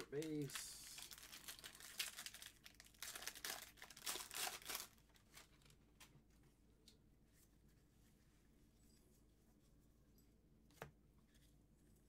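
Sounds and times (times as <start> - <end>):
wrappers crinkling and rustling: 0.0 - 6.1.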